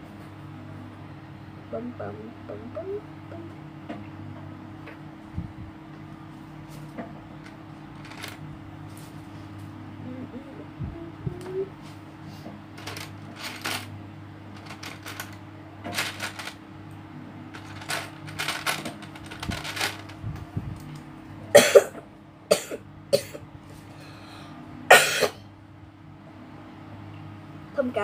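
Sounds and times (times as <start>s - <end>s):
plastic pieces clicking and clattering: 8.0s - 8.4s, 12.8s - 13.9s, 14.6s - 16.6s, 17.5s - 20.2s
person coughing: 21.5s - 23.4s, 24.9s - 25.4s.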